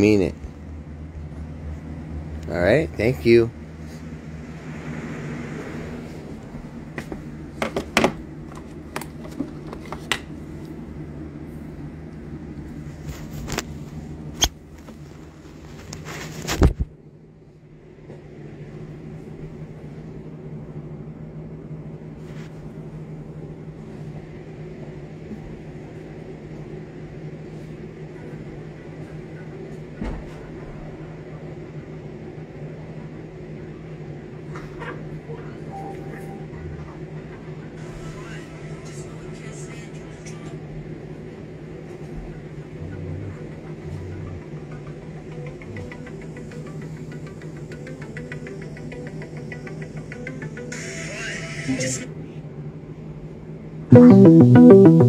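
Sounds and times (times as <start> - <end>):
steady low hum: 0.0 - 39.4, 40.0 - 48.3
phone bumping down: 53.9 - 55.0.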